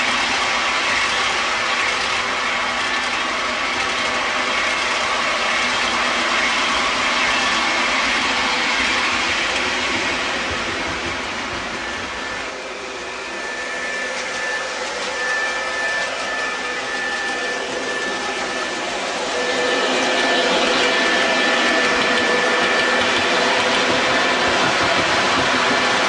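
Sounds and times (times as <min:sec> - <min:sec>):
model train wheels and motors: 0:00.0 - 0:26.0
thin high tone: 0:12.2 - 0:23.0.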